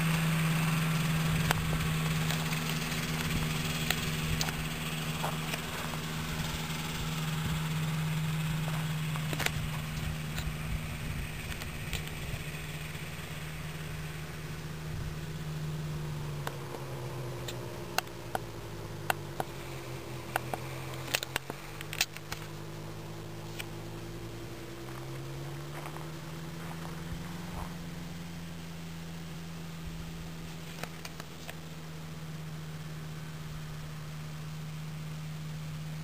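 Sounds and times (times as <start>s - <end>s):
small aircraft engine running: 0.0s - 36.0s
sharp clicks: 1.4s - 7.3s, 8.8s - 10.6s, 11.4s - 13.1s, 17.4s - 22.6s.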